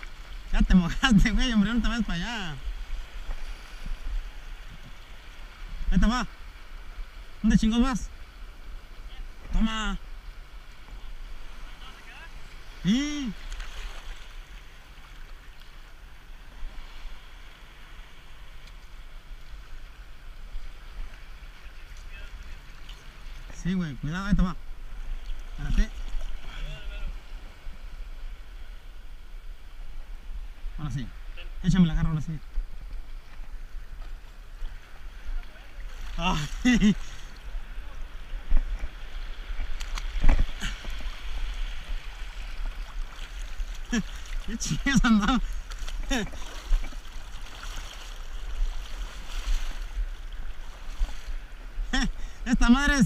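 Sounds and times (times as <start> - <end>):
sea surf rushing over rocks: 34.4 - 53.0
wind rumble on microphone: 37.3 - 52.0.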